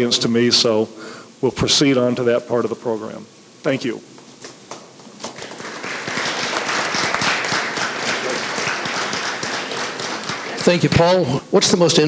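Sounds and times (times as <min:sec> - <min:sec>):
audience applauding: 0:05.2 - 0:11.3.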